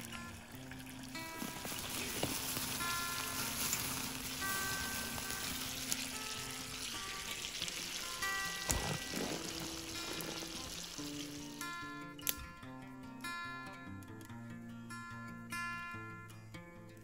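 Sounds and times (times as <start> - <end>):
oil sizzling in a skillet: 0.0 - 11.9.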